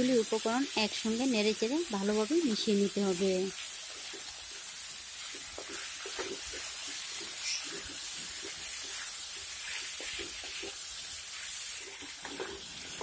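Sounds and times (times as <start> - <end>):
vegetables sizzling in oil: 0.0 - 13.0
spatula scraping and knocking pan: 5.2 - 13.0.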